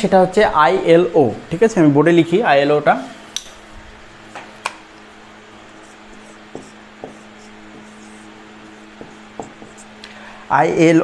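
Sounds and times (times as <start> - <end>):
low electrical hum: 0.0 - 11.0
marker scratching on whiteboard: 5.7 - 10.0
marker clicks and taps: 6.5 - 7.2, 9.0 - 9.8.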